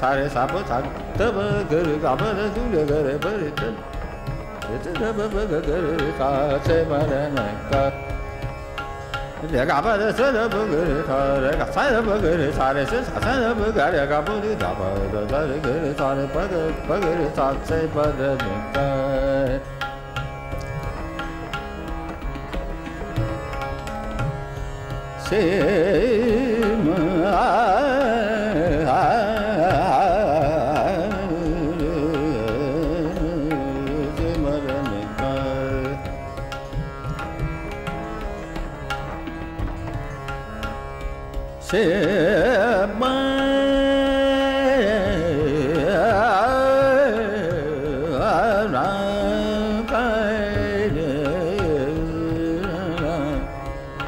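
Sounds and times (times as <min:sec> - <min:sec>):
man singing: 0:00.0 - 0:08.2, 0:09.4 - 0:19.9, 0:25.2 - 0:36.5, 0:41.6 - 0:53.8
tabla strokes: 0:00.0 - 0:54.0
tanpura drone: 0:00.0 - 0:54.0.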